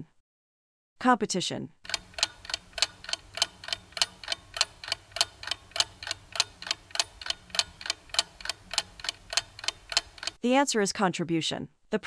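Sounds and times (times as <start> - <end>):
clock ticking: 1.8 - 10.4.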